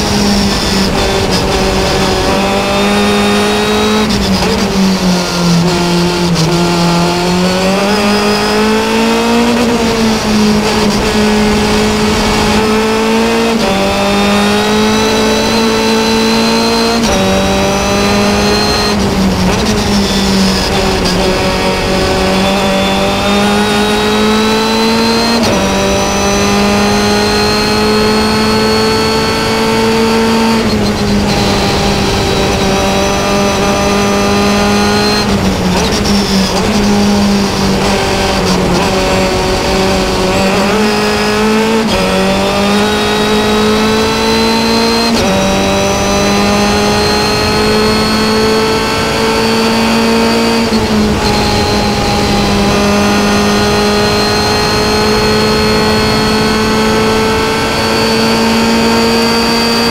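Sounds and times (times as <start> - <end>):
racing car engine through gears: 0.0 - 59.9.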